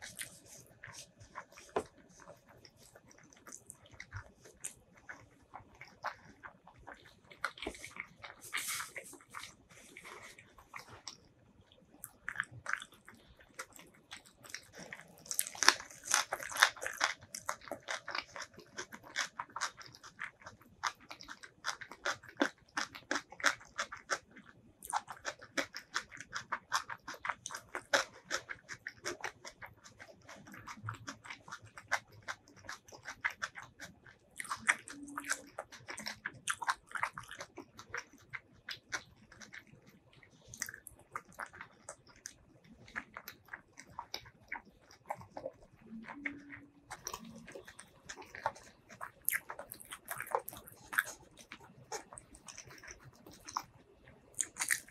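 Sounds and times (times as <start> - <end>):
mouth chewing crunchy greens: 0.0 - 54.9
biting into boiled egg: 40.5 - 54.9.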